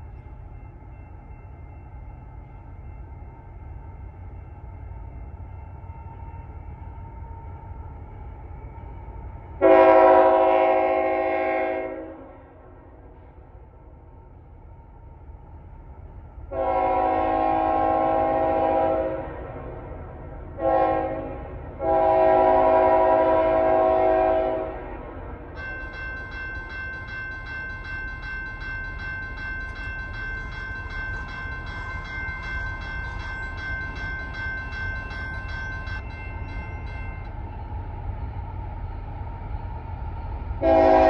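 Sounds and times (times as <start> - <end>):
train rumbling: 0.0 - 41.0
locomotive chime horn blasts: 9.6 - 12.4, 16.5 - 19.4, 20.6 - 25.1, 40.6 - 41.0
bell ringing: 25.6 - 37.3.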